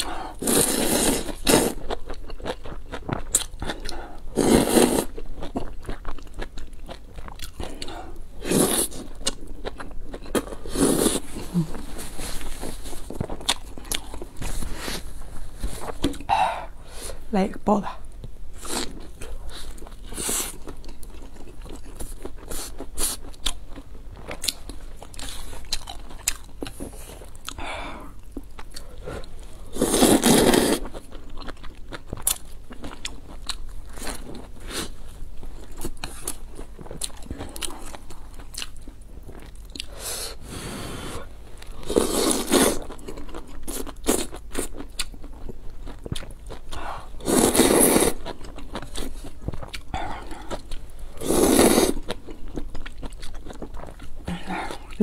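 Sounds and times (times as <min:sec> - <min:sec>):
chewing with wet mouth clicks: 0:05.1 - 0:07.9.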